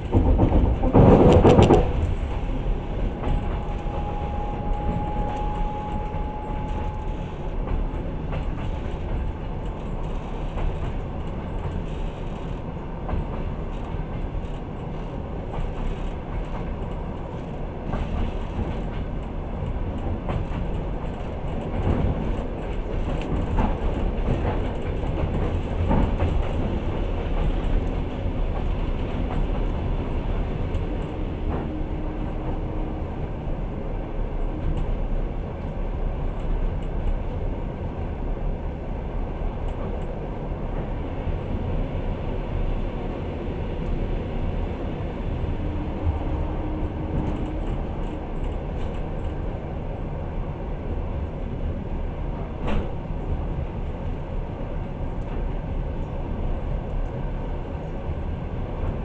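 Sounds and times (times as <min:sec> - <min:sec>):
train wheel clicks: 0:00.0 - 0:32.6, 0:46.7 - 0:49.5, 0:52.2 - 0:53.0
train wheels rumbling on rails: 0:00.0 - 0:59.0.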